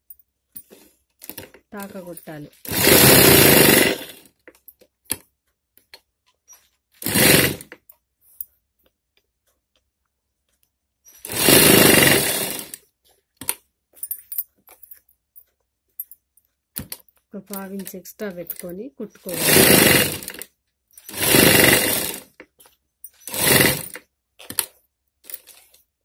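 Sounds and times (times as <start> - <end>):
sewing machine stitching: 0.7 - 4.4, 6.5 - 7.8, 11.1 - 12.8, 16.8 - 24.7.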